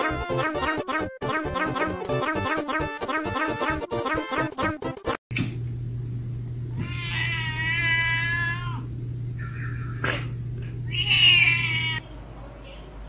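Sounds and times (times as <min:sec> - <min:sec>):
low hum: 0:05.3 - 0:07.0, 0:08.4 - 0:10.9
cat meowing: 0:06.7 - 0:10.1, 0:10.8 - 0:12.0.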